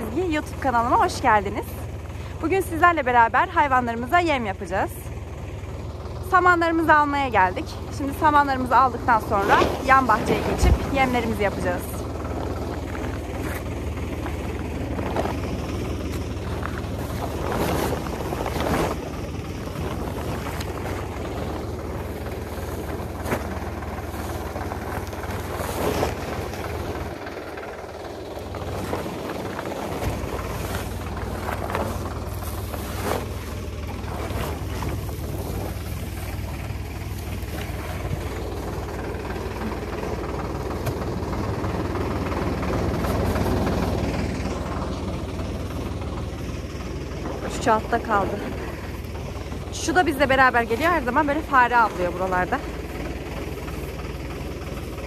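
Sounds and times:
vehicle engine running: 0.0 - 55.0
handling knocks and rustles: 12.3 - 27.4, 28.4 - 38.8.

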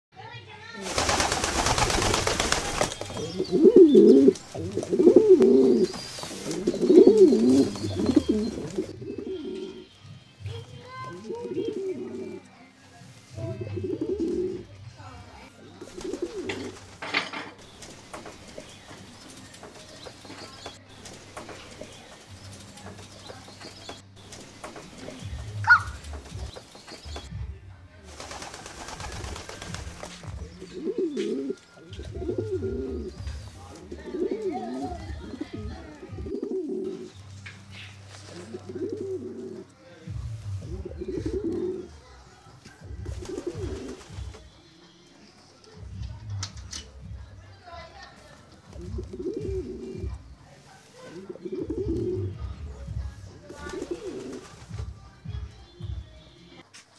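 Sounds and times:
pigeons cooing: 0.8 - 10.0, 11.2 - 12.5, 13.5 - 14.8, 15.7 - 17.0, 23.6 - 27.2, 28.2 - 37.2, 37.8 - 39.7, 40.6 - 42.0, 43.0 - 44.4, 48.8 - 50.2, 51.1 - 52.5, 53.5 - 54.5.

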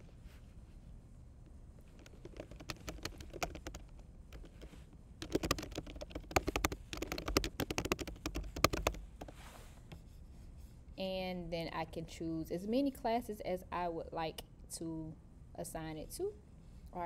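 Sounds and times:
typing on a keyboard: 1.9 - 9.3.

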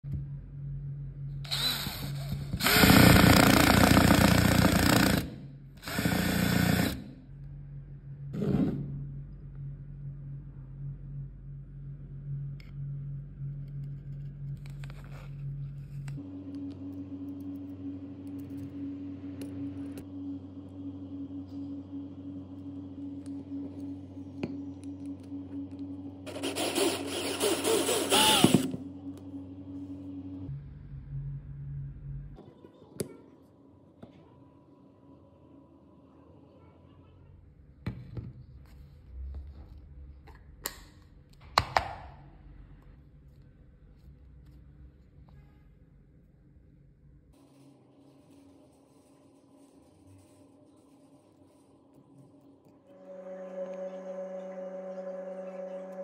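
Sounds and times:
power drill driving a screw: 1.5 - 7.0, 26.3 - 28.7.

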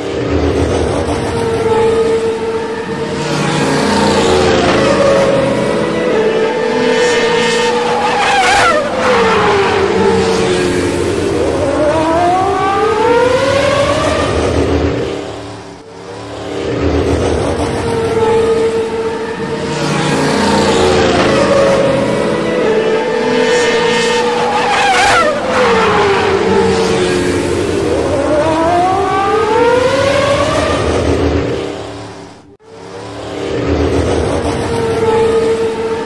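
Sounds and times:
race car engine whining: 0.0 - 36.0.

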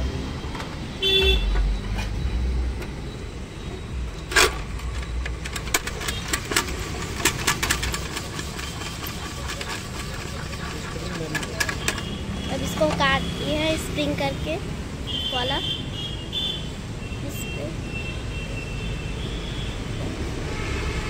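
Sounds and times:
road traffic rumble: 0.0 - 21.0
vehicle horn toot: 1.0 - 1.6
hand-cranked cutter clicking: 4.4 - 12.2.

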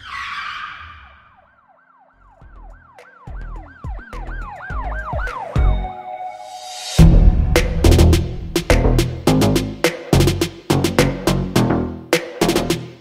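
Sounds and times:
siren-like wail: 0.0 - 7.5
swoosh hit: 6.5 - 9.6
deep bass hits: 7.0 - 11.8.

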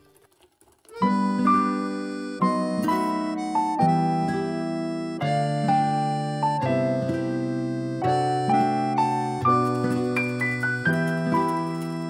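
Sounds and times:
instrumental melody of held notes: 0.9 - 12.0.

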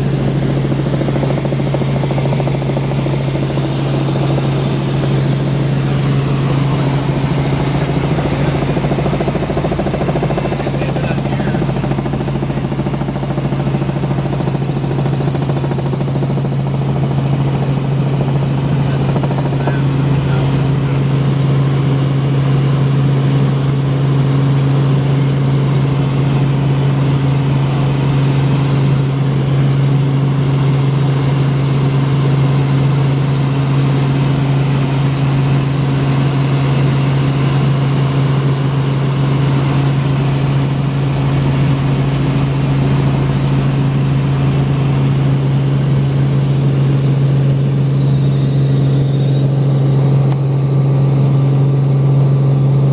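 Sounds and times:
helicopter engine and rotors drone: 0.0 - 52.9.

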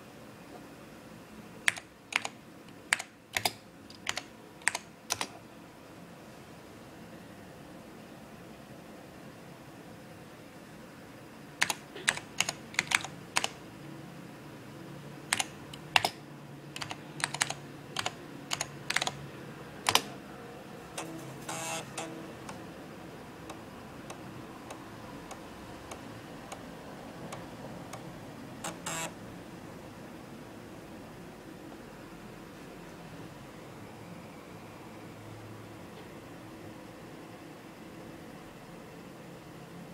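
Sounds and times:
keyboard key clicks: 2.9 - 5.3, 11.6 - 13.6, 15.3 - 16.2, 19.9 - 20.1.

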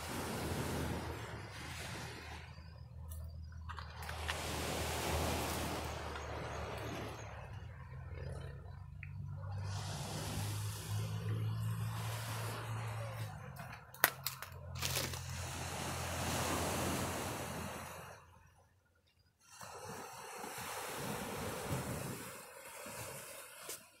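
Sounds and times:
wind on microphone: 0.0 - 2.9, 20.6 - 23.2
waves washing onto beach: 0.0 - 18.5, 19.4 - 24.0.

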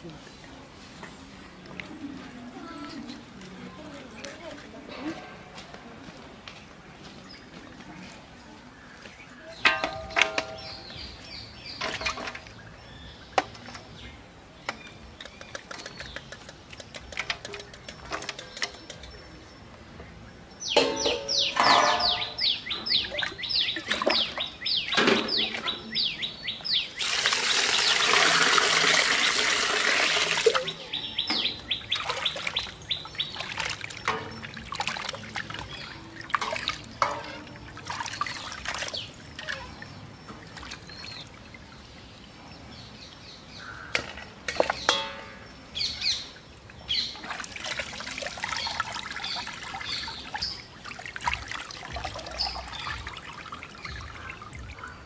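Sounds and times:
bird chirping: 9.4 - 27.1, 30.6 - 34.6
splashing and clinks on metal: 9.6 - 11.1, 11.7 - 12.6, 20.7 - 23.1, 31.3 - 41.1, 44.1 - 45.8
water pouring into steel pot: 27.0 - 30.6.

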